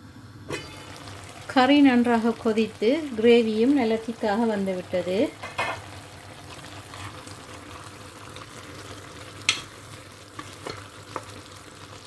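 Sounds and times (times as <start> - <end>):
curry bubbling and sizzling: 0.5 - 12.0
wooden spatula stirring: 6.8 - 7.3.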